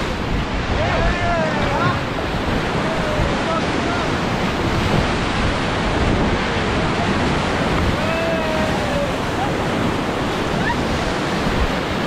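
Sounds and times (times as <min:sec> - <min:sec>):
whitewater rapids rushing: 0:00.0 - 0:12.0
wind buffeting microphone: 0:00.0 - 0:12.0.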